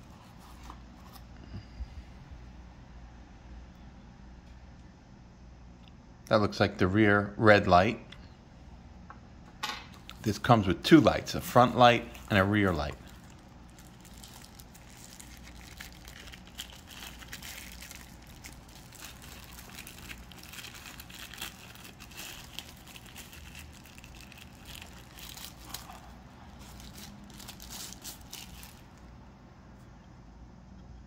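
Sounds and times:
plastic wrap crinkling: 0:09.9 - 0:29.2.

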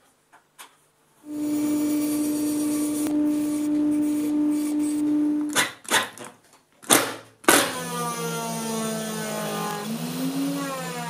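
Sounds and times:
bandsaw humming: 0:01.2 - 0:05.6, 0:07.9 - 0:11.0
saw cutting hiss: 0:01.3 - 0:05.6.

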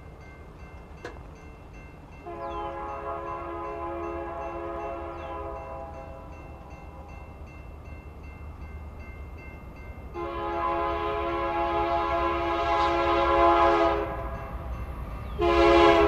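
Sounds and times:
train air horn blasts: 0:02.2 - 0:06.8, 0:10.2 - 0:14.4, 0:15.4 - 0:16.0.

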